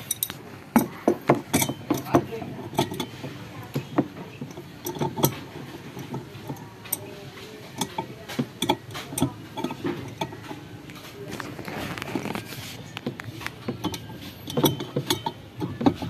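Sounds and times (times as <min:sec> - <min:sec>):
hands clicking and knocking on machinery: 0:00.0 - 0:10.6, 0:13.0 - 0:16.0.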